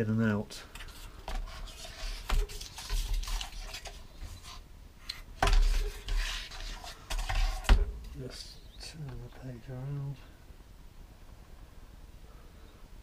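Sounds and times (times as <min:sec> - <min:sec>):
paper sliding and rustling: 0:00.8 - 0:04.6, 0:05.4 - 0:07.8.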